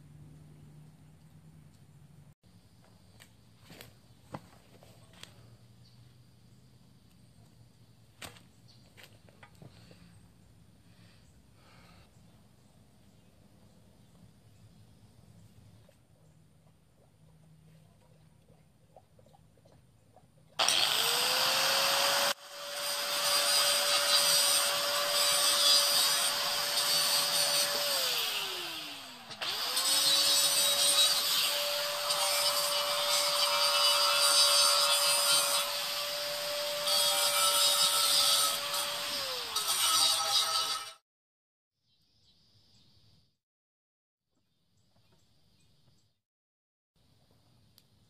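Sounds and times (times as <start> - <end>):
angle grinder grinding steel: 20.6 - 41.0.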